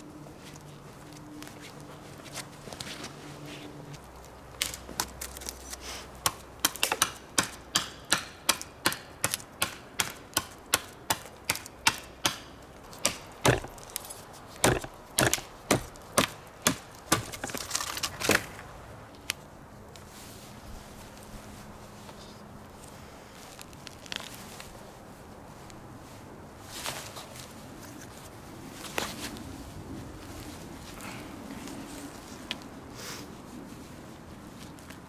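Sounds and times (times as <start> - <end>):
knife chopping branch: 6.2 - 14.0, 14.6 - 18.6.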